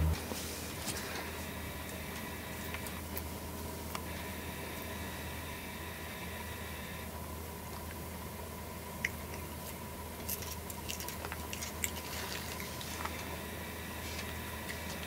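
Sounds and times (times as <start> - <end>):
cat chewing grass: 8.8 - 15.0.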